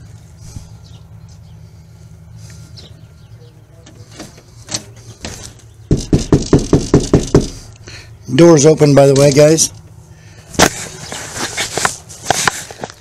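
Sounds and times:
loud pounding on a door: 5.9s - 7.6s.

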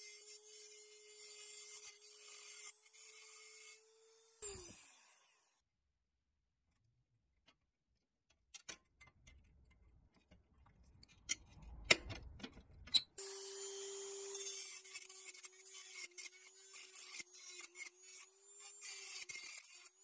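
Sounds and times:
rotary tool grinding: 0.0s - 4.8s, 12.6s - 20.0s.

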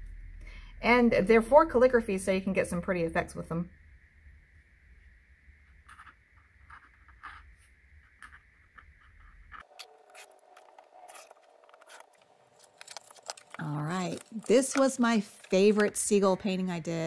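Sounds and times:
faint handling sounds: 5.7s - 16.5s
brush pen scratching on paper: 5.8s - 16.0s.

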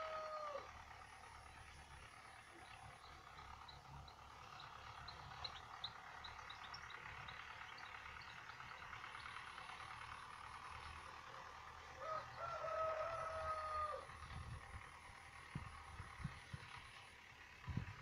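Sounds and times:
rooster crowing: 0.0s - 0.9s, 11.9s - 14.3s
small birds chirping: 1.1s - 17.2s.

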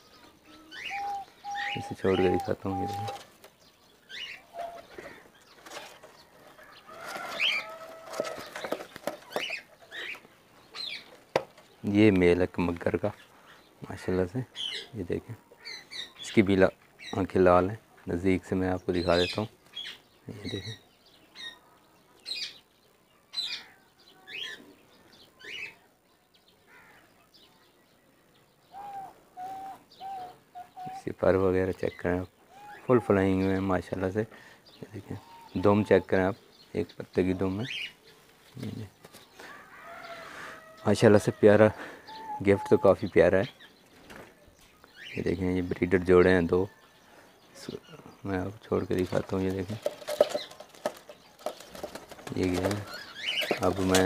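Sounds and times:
birds chirping and clucking: 0.0s - 54.0s
wooden nest box clicks and knocks: 7.1s - 9.6s, 11.2s - 11.7s
pigeon wings flapping: 49.8s - 54.0s.

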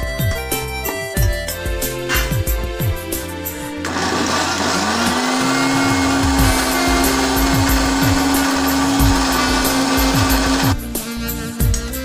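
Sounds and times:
mixer grinder motor whining: 3.8s - 10.9s.

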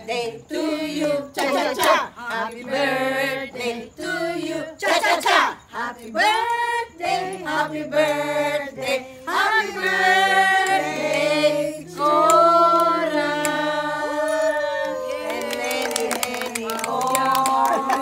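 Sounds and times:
women singing a birthday song: 0.0s - 18.0s.

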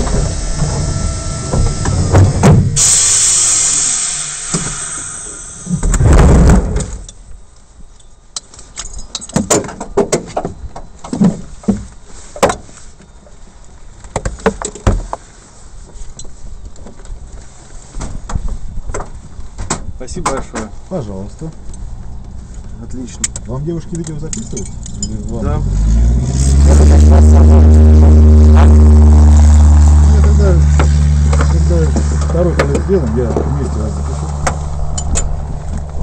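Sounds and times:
loud hiss: 0.0s - 7.0s.

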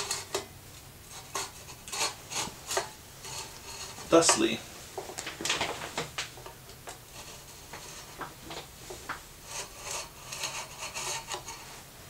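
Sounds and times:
metal tray scraping in glass tube: 1.1s - 4.6s, 9.4s - 11.8s.

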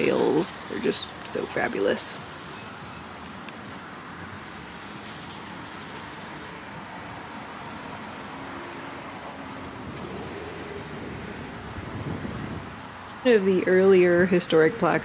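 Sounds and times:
street traffic noise: 0.0s - 15.0s
passing vehicle engine hum: 1.8s - 13.3s.

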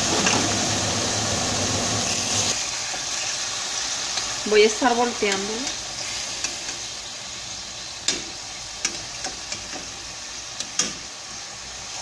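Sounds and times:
fruit sizzling in hot oil: 0.0s - 12.0s
metal tongs clicking on pan: 5.2s - 5.8s, 8.0s - 10.0s, 10.6s - 11.0s.

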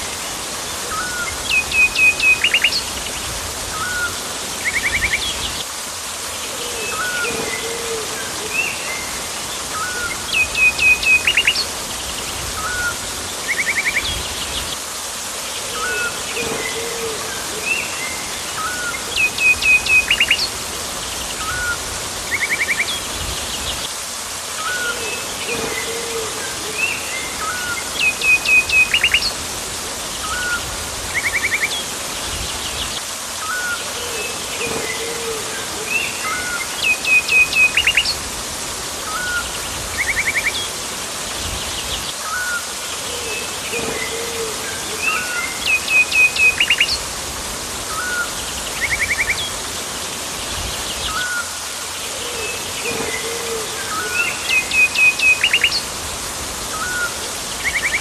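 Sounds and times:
water rushing: 0.0s - 58.0s.

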